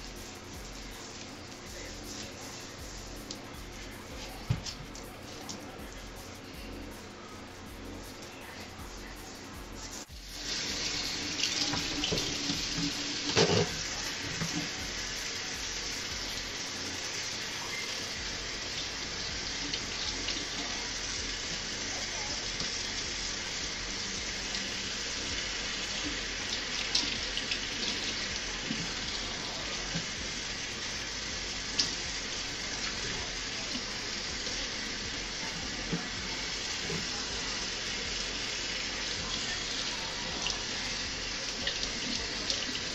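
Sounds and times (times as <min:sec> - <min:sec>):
faucet running into metal sink: 0:10.4 - 0:42.9.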